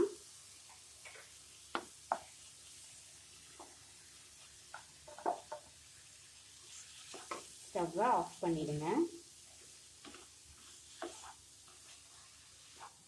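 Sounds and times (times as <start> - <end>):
faint sizzle: 0.0 - 13.0
spatula scraping pan: 6.6 - 7.5, 9.4 - 13.0.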